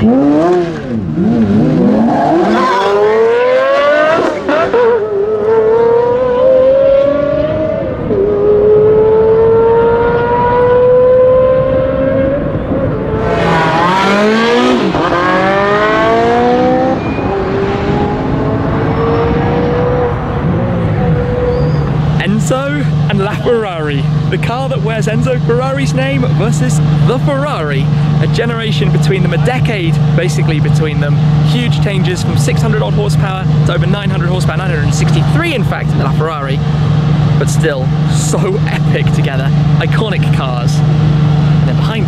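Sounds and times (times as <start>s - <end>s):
car engines accelerating hard: 0.0s - 42.0s.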